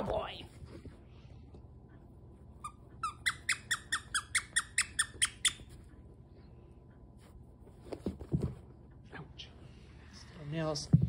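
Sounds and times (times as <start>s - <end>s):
dog toy squeaking: 2.6s - 5.7s.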